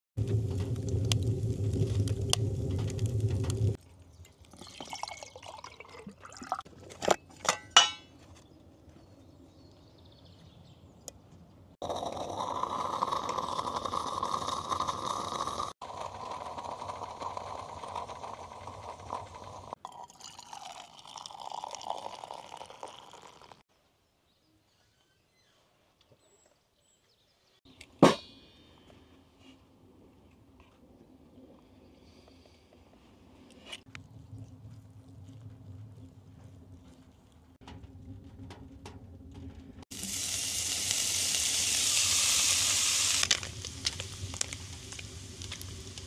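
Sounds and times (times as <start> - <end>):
wood fire crackling in stove: 0.2 - 3.8, 35.1 - 46.0
drink poured into metal mug: 4.4 - 7.2, 11.8 - 23.6
can of food hissing: 39.9 - 46.0.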